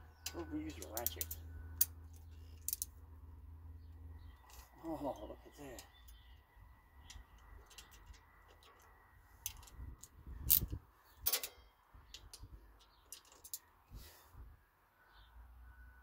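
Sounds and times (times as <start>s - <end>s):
clicks and clinks of hand tools: 0.2s - 1.9s.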